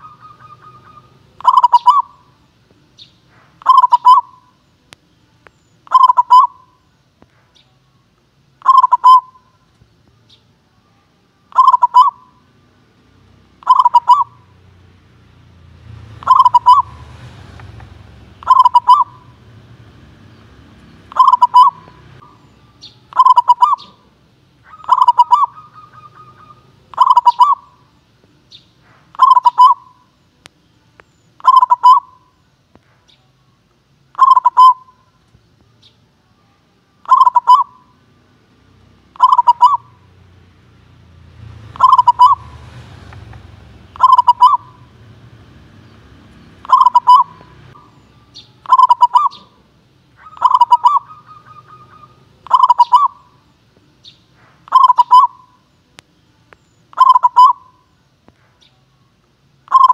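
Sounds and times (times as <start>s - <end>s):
dove cooing: 0.0s - 2.4s, 3.5s - 4.6s, 5.8s - 6.8s, 8.6s - 9.6s, 11.5s - 12.4s, 13.6s - 14.5s, 16.0s - 27.9s, 29.0s - 30.1s, 31.4s - 32.3s, 34.1s - 35.1s, 37.0s - 38.0s, 39.1s - 40.1s, 41.7s - 53.4s, 54.6s - 55.6s, 56.9s - 57.8s, 59.7s - 59.9s.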